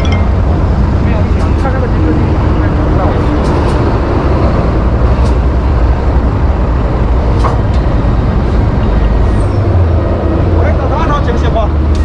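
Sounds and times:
road noise: 0.0s - 12.0s
truck engine: 0.0s - 12.0s.

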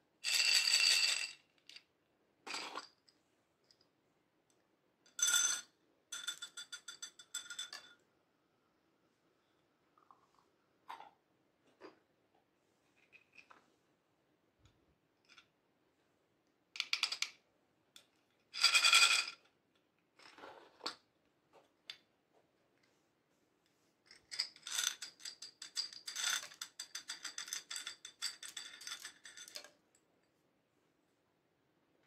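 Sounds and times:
beads clattering into a glass dish: 0.2s - 1.8s.

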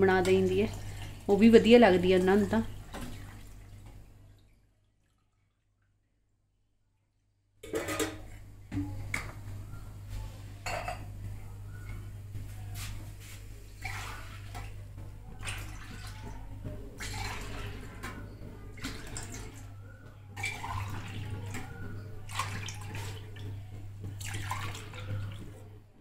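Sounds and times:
liquid pouring between steel cups: 13.7s - 19.7s, 20.4s - 25.6s.

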